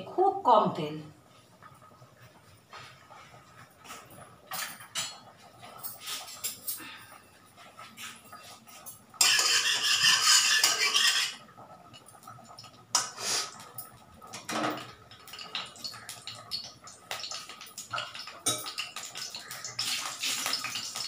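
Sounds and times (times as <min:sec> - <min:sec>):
spatula scraping a pan: 0:08.0 - 0:11.4.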